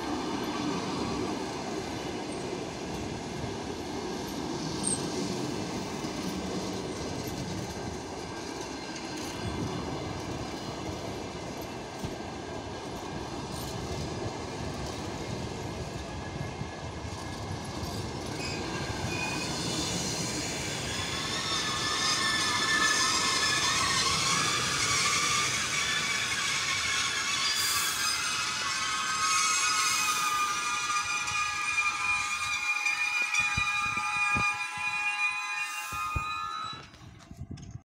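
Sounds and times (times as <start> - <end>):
train coaches rumbling on rails: 0.0 - 37.8
wheel squeal: 17.8 - 37.3.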